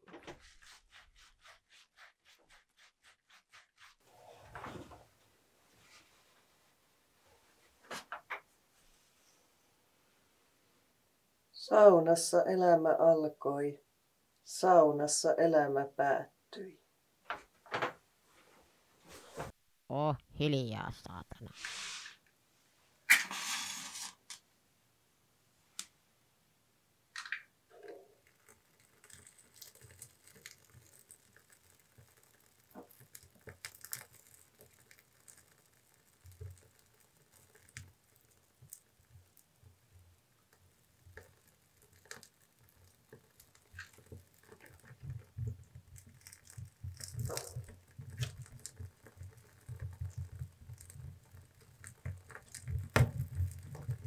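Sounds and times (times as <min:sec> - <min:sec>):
wood fire crackling: 0:27.1 - 0:54.0.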